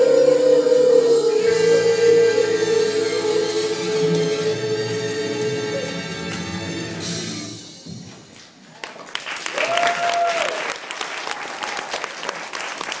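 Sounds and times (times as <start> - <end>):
stage musical music: 0.0 - 10.2
audience applause: 8.7 - 13.0
person cheering: 9.5 - 10.7.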